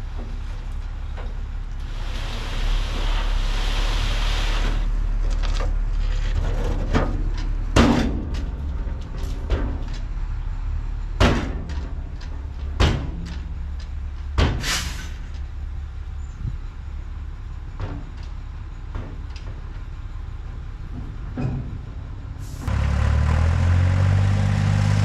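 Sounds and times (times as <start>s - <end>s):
hiss: 1.8s - 4.9s, 14.6s - 15.2s
truck engine running: 15.2s - 25.0s.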